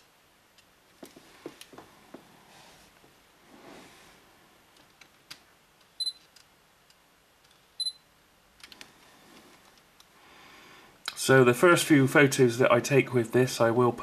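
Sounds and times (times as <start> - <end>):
camera focus beep: 7.8 - 8.0.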